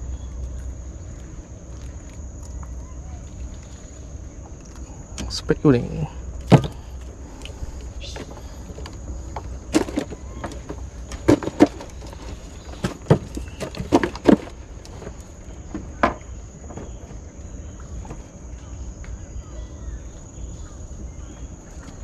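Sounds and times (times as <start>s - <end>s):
night insects droning: 0.0s - 22.0s
knocks and handling sounds: 6.4s - 7.1s, 7.8s - 17.2s.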